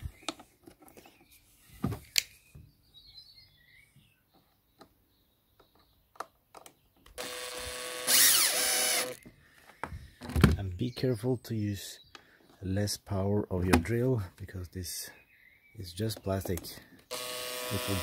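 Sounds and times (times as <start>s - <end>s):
light clicks of plastic parts: 0.2s - 1.3s, 4.3s - 7.2s, 16.0s - 17.1s
cordless drill driving screw: 7.2s - 9.2s, 17.1s - 18.0s.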